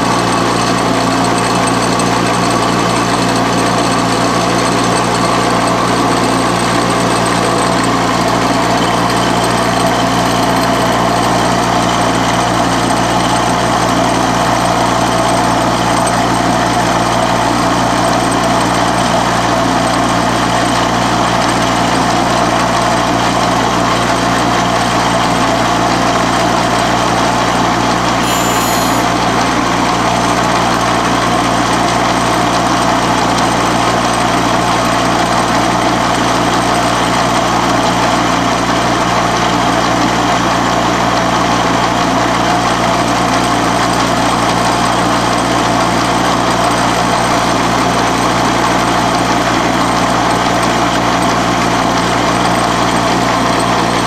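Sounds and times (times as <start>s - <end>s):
milling machine cutting metal: 28.2s - 29.1s
brief high-pitched sound: 28.2s - 29.2s.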